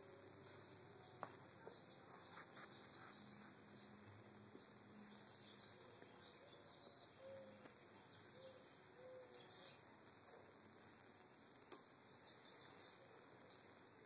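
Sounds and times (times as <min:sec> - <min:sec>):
faint high bird chirps: 0:00.4 - 0:10.4
soft low bird coos: 0:05.8 - 0:10.5.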